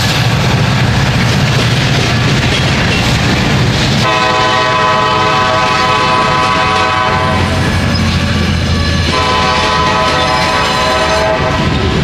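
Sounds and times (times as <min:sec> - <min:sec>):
rumble of passing train: 0:00.0 - 0:12.0
locomotive horn blowing: 0:04.0 - 0:07.8, 0:09.0 - 0:12.0.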